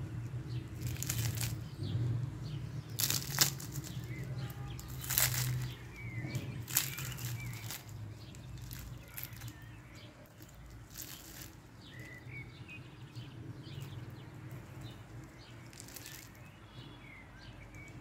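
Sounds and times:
small birds chirping faintly: 0.0s - 18.0s
crisp dough tearing: 0.7s - 1.7s, 2.9s - 9.7s, 10.3s - 12.2s, 15.1s - 16.5s.

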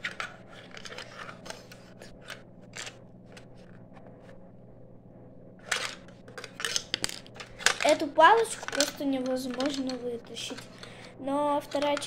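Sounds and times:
plastic clicks and scrapes: 0.0s - 3.5s, 5.6s - 11.1s, 11.7s - 12.0s.

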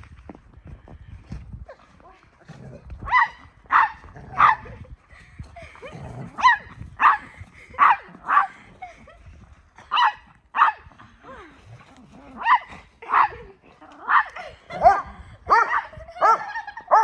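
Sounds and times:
dog barking: 3.1s - 4.6s, 9.9s - 10.8s, 14.8s - 17.0s.

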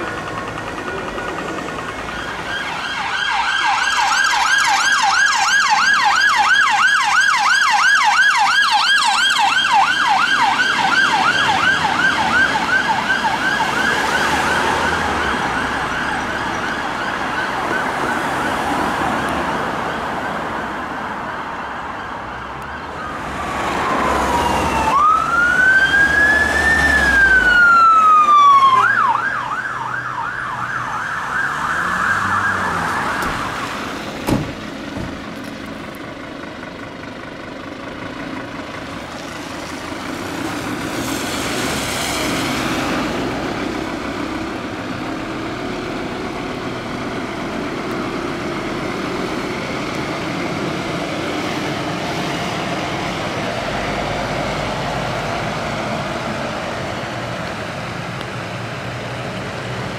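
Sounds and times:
siren slow wail: 1.0s - 34.1s
siren rapid yelp: 1.2s - 20.7s, 21.6s - 33.9s.

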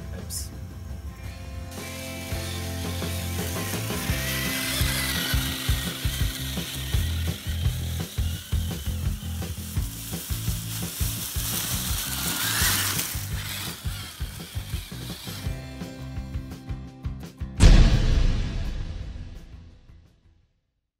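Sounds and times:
toy car motor whining: 0.5s - 16.6s
leaves crackling under tyres: 3.4s - 15.4s.

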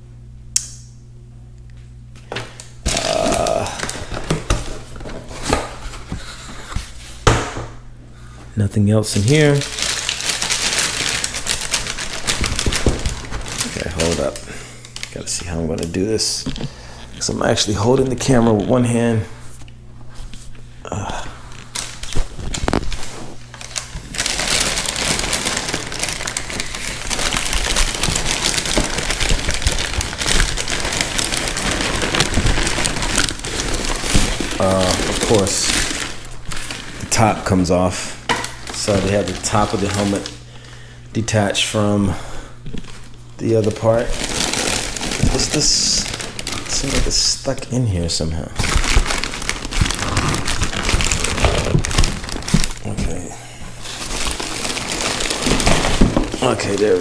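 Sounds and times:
wrapping crinkling: 2.2s - 7.2s, 8.9s - 42.0s, 42.6s - 57.0s
cardboard rustling and scraping: 48.6s - 53.2s.

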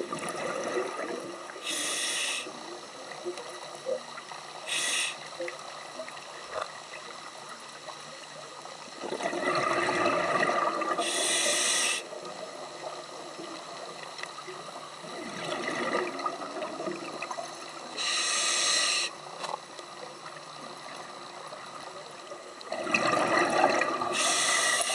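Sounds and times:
exhaled bubbles: 0.0s - 1.6s, 9.0s - 11.2s, 15.0s - 17.4s, 22.7s - 24.9s
regulator inhale hiss: 1.5s - 2.8s, 4.5s - 5.5s, 10.8s - 12.4s, 17.8s - 19.4s, 24.0s - 24.9s.

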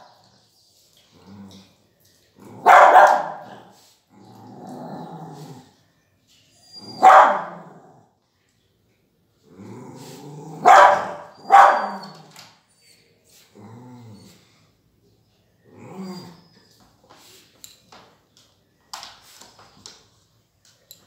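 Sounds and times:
dog growling: 1.1s - 1.8s, 4.1s - 5.8s, 9.4s - 10.7s, 13.6s - 14.4s, 15.7s - 16.4s
dog barking: 2.6s - 3.7s, 6.9s - 7.7s, 10.6s - 12.1s.

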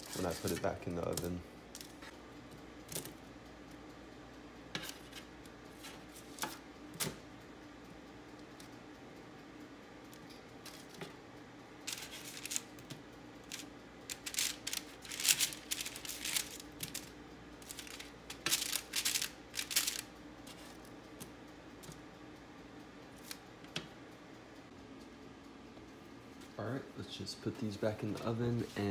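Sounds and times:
metal spatula scraping baking sheet: 0.0s - 0.8s.

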